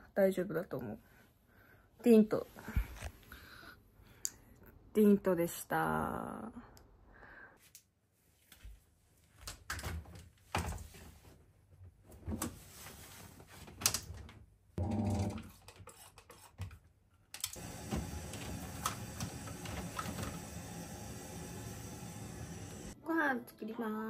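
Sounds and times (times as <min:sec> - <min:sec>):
motor hum: 0:17.5 - 0:23.0
water filling drum: 0:17.6 - 0:23.0.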